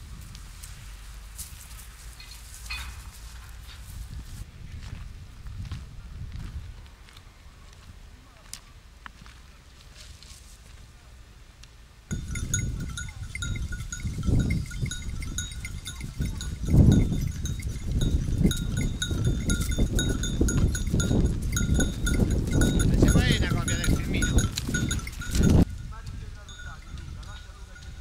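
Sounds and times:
low gusty rumble: 12.1 - 28.0
metal bells jingling: 12.1 - 28.0.

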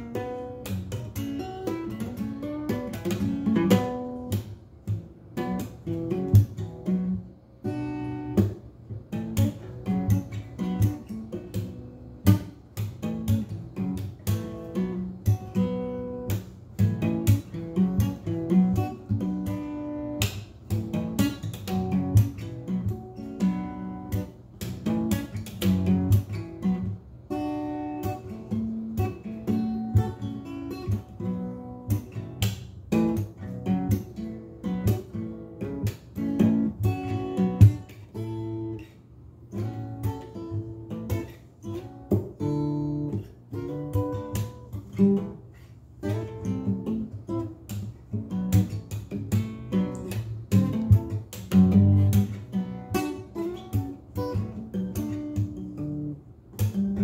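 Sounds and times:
acoustic guitar picking and strumming: 0.0 - 57.0.

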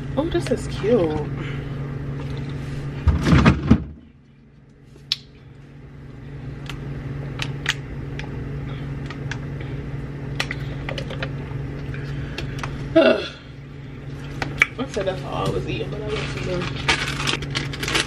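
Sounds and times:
low hum: 0.0 - 18.0
plastic water bottle crackling: 16.1 - 18.0.

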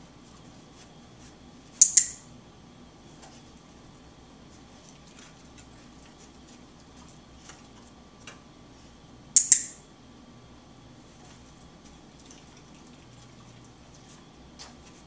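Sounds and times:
clicker double click: 1.8 - 2.2, 9.4 - 9.8.

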